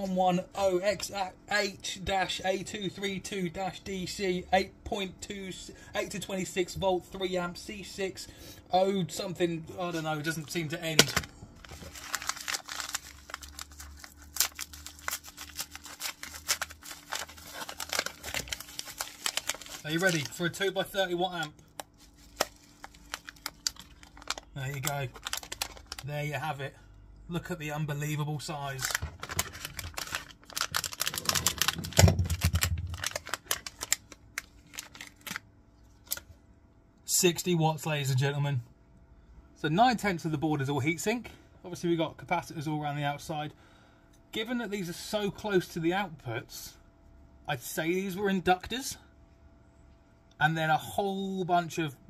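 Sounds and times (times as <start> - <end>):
plastic bag crinkling: 10.2 - 26.1, 28.7 - 36.2
packet being torn open: 10.9 - 20.4, 21.4 - 26.1, 28.8 - 35.4, 36.0 - 36.2.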